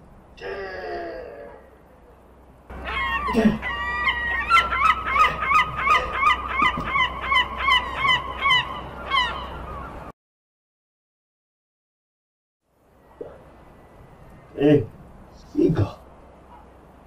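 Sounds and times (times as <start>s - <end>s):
seagull laughing calls: 2.7s - 10.1s.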